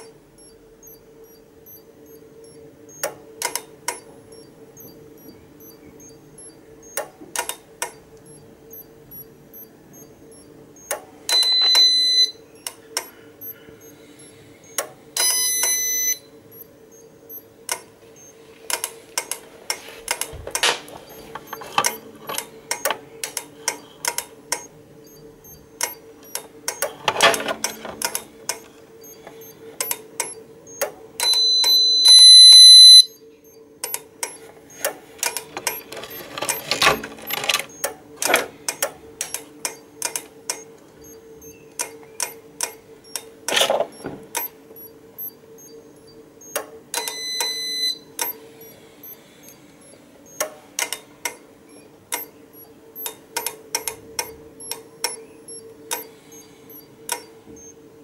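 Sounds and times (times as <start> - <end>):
keypad buzzer beeping: 0.0 - 18.4, 20.5 - 39.9, 40.5 - 57.8
sharp ticking clicks: 0.0 - 57.8
plastic rattles: 35.2 - 38.5.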